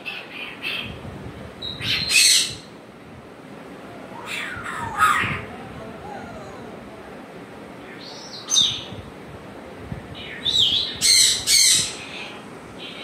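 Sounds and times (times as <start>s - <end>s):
parrot whistling: 4.1s - 5.4s
parrot squawking: 4.1s - 6.7s, 10.2s - 13.0s.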